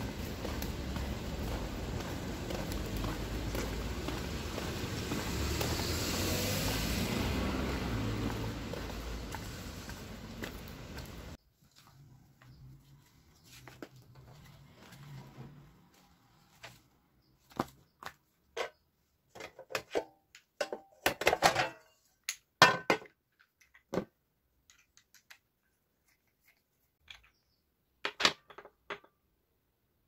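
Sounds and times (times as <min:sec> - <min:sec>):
hard parts clattering on table: 0:19.4 - 0:22.0.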